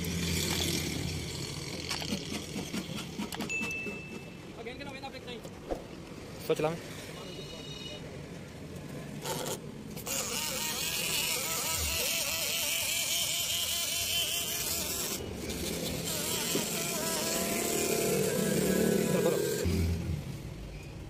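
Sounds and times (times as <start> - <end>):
mirror motor buzzing: 9.2 - 19.7.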